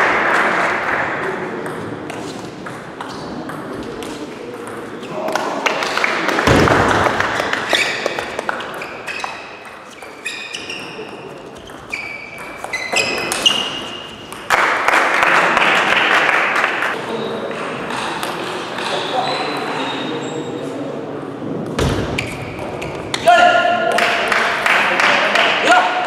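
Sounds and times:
shoes squeaking on floor: 0:07.3 - 0:14.4, 0:18.8 - 0:20.9, 0:22.1 - 0:23.2
applause: 0:14.5 - 0:17.0, 0:24.0 - 0:25.6.

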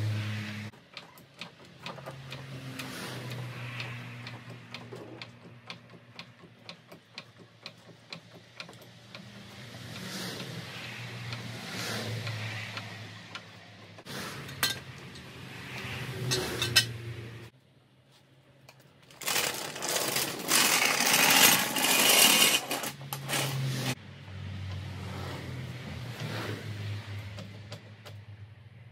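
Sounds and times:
fast mechanical rattling: 0:19.1 - 0:24.0.

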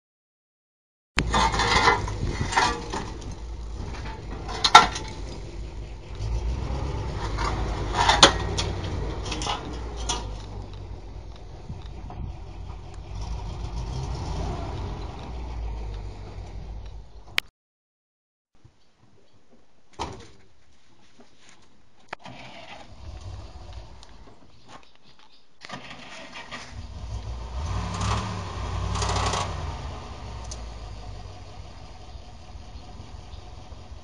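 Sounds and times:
heavy machine engine running: 0:01.2 - 0:17.1, 0:26.9 - 0:34.0.

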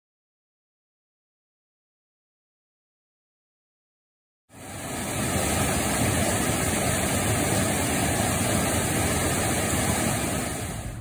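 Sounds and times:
water rushing over rocks: 0:04.6 - 0:11.0.

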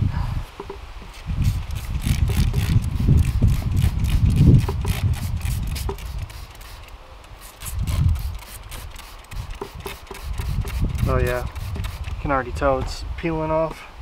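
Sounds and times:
spray bottle spritzing: 0:01.2 - 0:12.2
spray bottle trigger click: 0:01.4 - 0:12.2.

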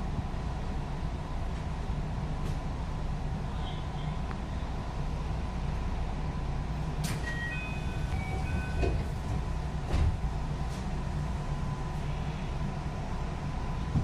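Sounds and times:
train wheels rumbling on rail: 0:00.0 - 0:14.0
rail joint clacks: 0:07.0 - 0:10.2.

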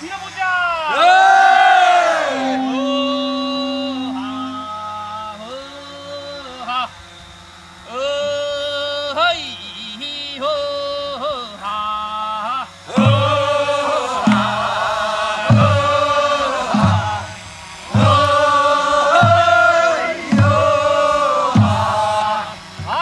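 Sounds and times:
person singing: 0:02.0 - 0:05.0
group singing folk song: 0:12.9 - 0:23.0.

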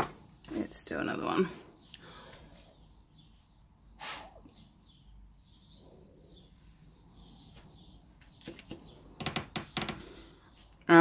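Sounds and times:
puff of breath through straw: 0:04.0 - 0:04.4.

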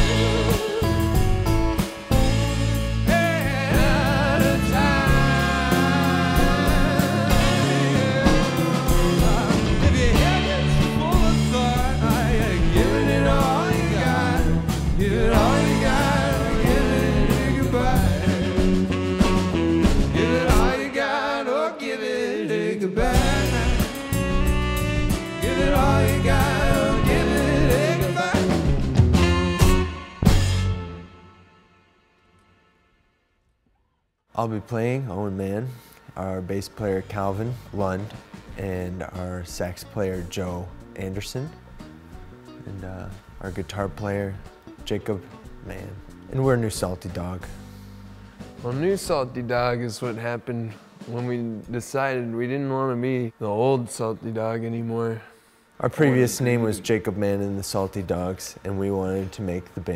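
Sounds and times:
person singing: 0:00.0 - 0:01.4, 0:02.2 - 0:19.1, 0:20.1 - 0:28.9
funk band playing live: 0:00.0 - 0:21.0, 0:23.0 - 0:31.0.

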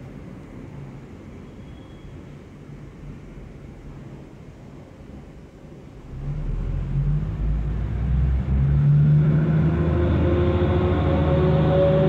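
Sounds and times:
train rumble and engine drone: 0:00.0 - 0:12.0.

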